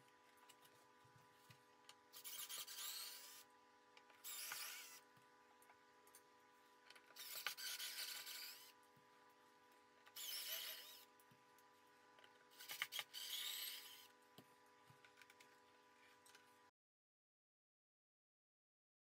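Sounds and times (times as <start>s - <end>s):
cordless drill whining: 2.2s - 3.4s, 4.2s - 5.0s, 7.2s - 8.7s, 10.2s - 11.1s, 12.6s - 14.1s.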